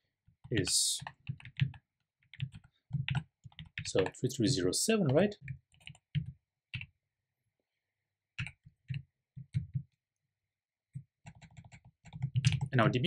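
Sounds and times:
computer keyboard typing: 0:00.6 - 0:04.3, 0:05.1 - 0:06.9, 0:08.4 - 0:09.8, 0:11.2 - 0:12.9.

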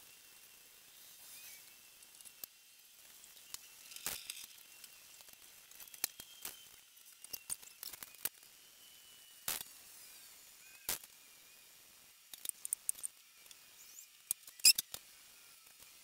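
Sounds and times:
clicks and rustling of handled objects: 0:01.3 - 0:08.5, 0:12.3 - 0:16.0.

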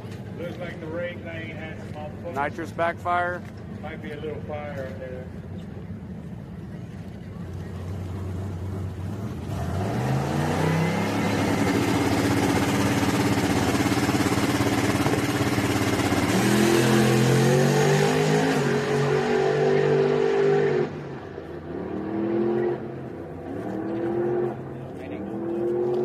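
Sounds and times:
truck engine revving: 0:07.8 - 0:21.0.

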